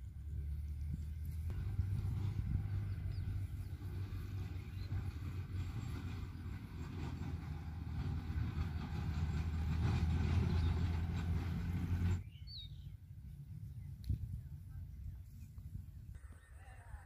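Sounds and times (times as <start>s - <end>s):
low engine drone: 0.0s - 15.2s
bird chirp: 12.2s - 13.0s.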